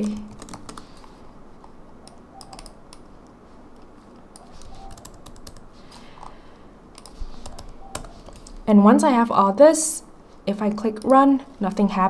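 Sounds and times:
computer keyboard typing: 0.0 - 6.3, 6.9 - 8.7.

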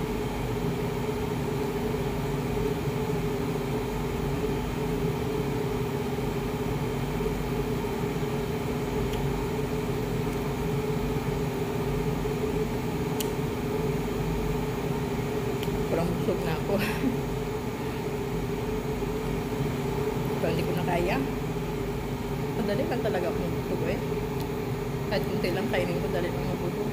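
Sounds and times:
machine hum: 0.0 - 26.9
click: 13.2 - 13.4.

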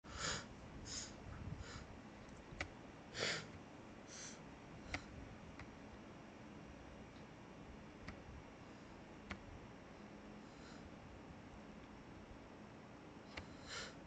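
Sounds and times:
breathing through the nose: 0.1 - 1.9, 3.2 - 3.5, 4.1 - 5.1, 10.4 - 10.9, 13.4 - 14.0.

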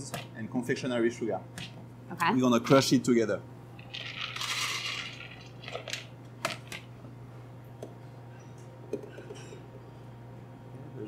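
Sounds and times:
almonds rattling into metal bowl: 3.9 - 6.1.

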